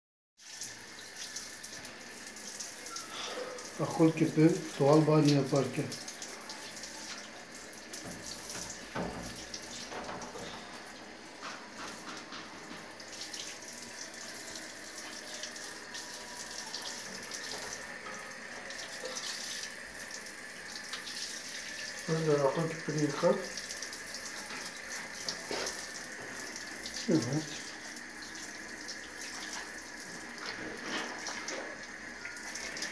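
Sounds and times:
shower spray hissing: 0:13.0 - 0:32.9.

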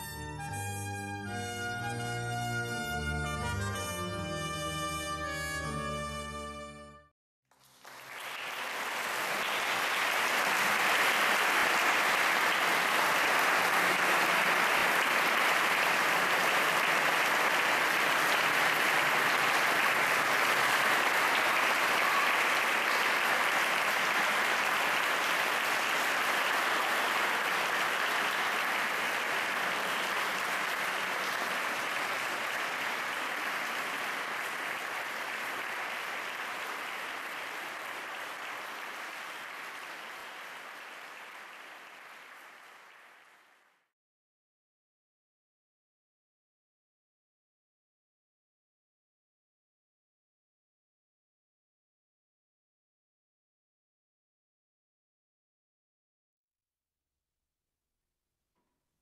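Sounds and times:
audience applauding: 0:07.5 - 0:43.8.

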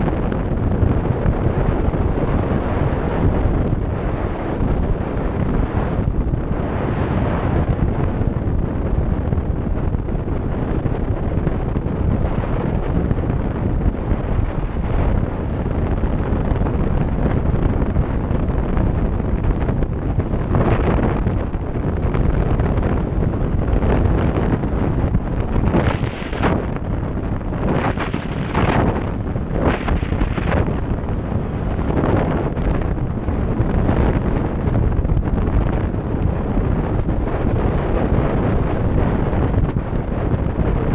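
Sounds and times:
wind roaring over microphone: 0:00.0 - 0:40.9.

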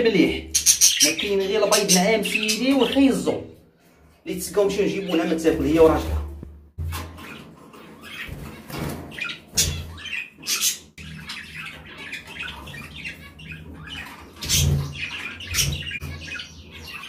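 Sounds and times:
caged birds chirping and squawking: 0:00.0 - 0:17.0
knocks and rattles of wire cage: 0:06.0 - 0:10.0.

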